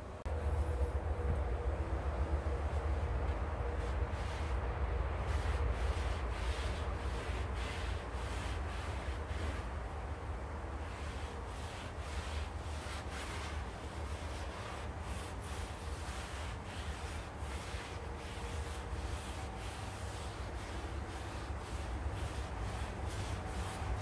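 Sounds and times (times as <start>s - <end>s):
steady low rumble: 0.0s - 10.8s
rhythmic rubbing strokes: 10.8s - 24.0s.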